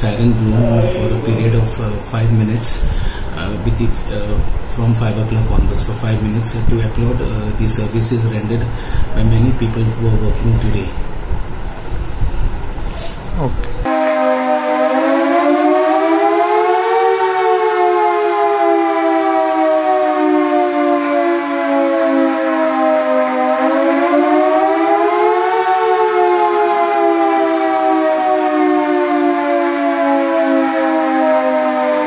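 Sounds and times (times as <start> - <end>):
siren wailing: 0.0 - 2.3, 13.8 - 32.0.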